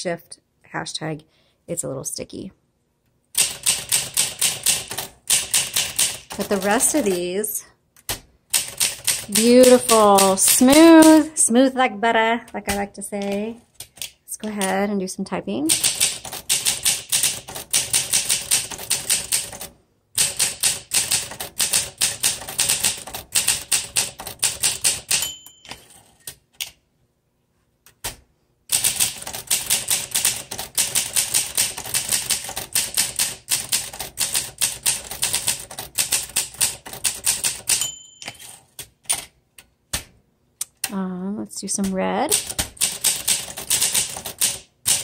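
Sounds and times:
typewriter margin bell ding: 0:25.0 - 0:26.2, 0:37.6 - 0:38.7.

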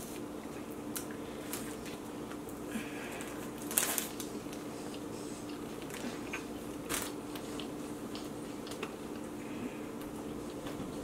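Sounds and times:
crunch while eating: 0:00.0 - 0:10.8
steady low hum: 0:00.0 - 0:11.0
chewing and mouth sounds: 0:03.8 - 0:11.0.

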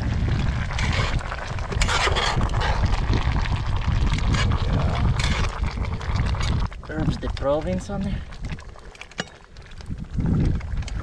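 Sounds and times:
steady low rumble: 0:00.0 - 0:08.8
stew boiling: 0:00.0 - 0:11.0
metal spatula scraping a pan: 0:00.8 - 0:02.8.

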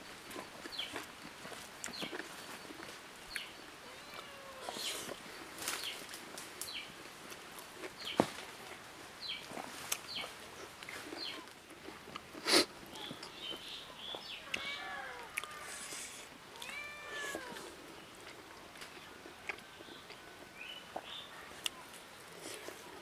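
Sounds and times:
meow-like animal calls: 0:03.8 - 0:04.8, 0:14.4 - 0:17.7.

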